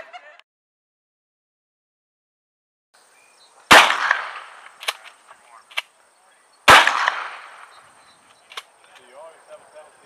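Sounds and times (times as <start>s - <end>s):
shotgun shots echoing: 3.7s - 5.9s, 6.6s - 7.8s.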